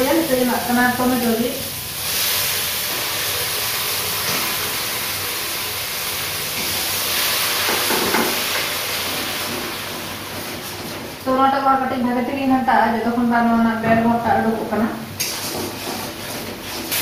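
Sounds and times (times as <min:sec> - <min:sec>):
paste sizzling in hot oil: 0:00.0 - 0:11.2, 0:15.2 - 0:17.0.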